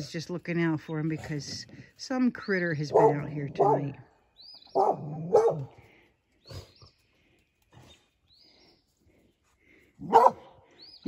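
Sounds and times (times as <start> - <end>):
dog barking: 2.9 - 4.0, 4.7 - 5.7, 10.0 - 10.6.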